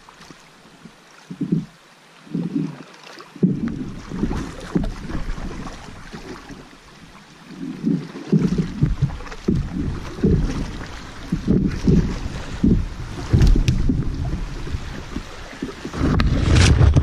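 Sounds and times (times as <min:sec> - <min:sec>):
water splashing around kayak: 0:00.0 - 0:17.0
wind buffeting microphone: 0:07.8 - 0:17.0.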